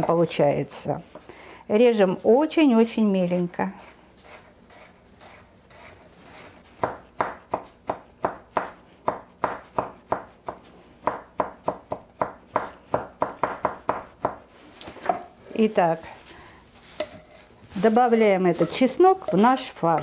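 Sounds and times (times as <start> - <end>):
knife chopping on cutting board: 3.8 - 14.4.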